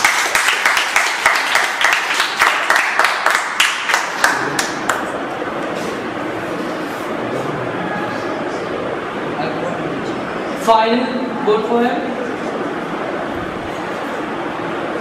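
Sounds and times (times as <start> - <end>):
small audience clapping: 0.0 - 5.6.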